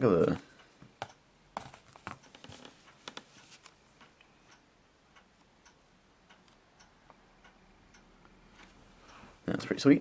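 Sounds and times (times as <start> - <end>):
book being handled: 1.6 - 3.8.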